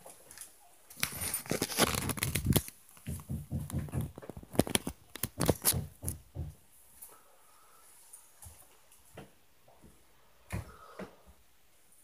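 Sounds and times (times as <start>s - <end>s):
clatter of knocks and thumps: 1.8s - 6.6s.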